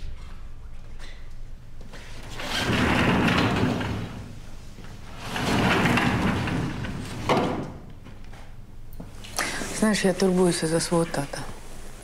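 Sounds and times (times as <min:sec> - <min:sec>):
sliding glass door rolling: 0:02.2 - 0:07.9.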